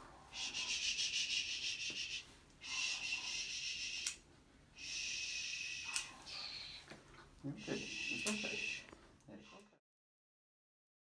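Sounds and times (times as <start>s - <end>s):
nail clipper click: 4.0s - 4.2s, 5.8s - 6.1s.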